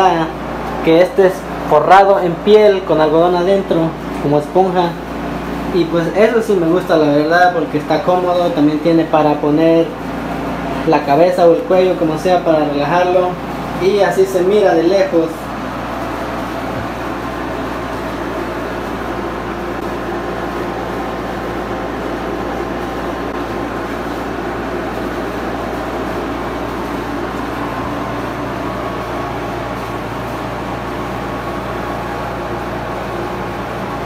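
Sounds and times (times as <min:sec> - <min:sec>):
air conditioner humming: 0:00.0 - 0:34.0.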